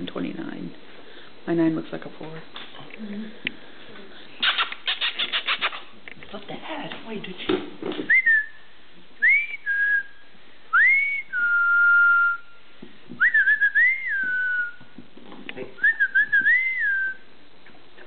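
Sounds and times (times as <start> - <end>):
person whistling: 8.1 - 8.6, 9.2 - 12.6, 13.2 - 14.8, 15.8 - 17.2.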